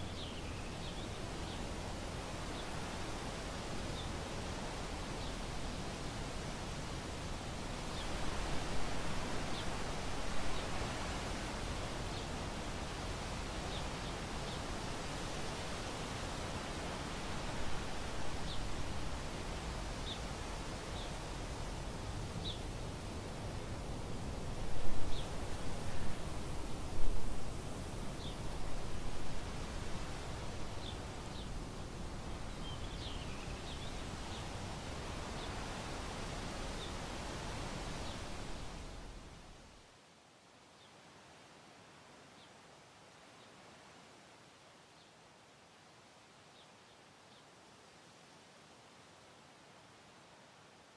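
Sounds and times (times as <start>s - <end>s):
rustling wind gusts: 0.0s - 39.9s
outdoor ambient hiss: 0.0s - 50.9s.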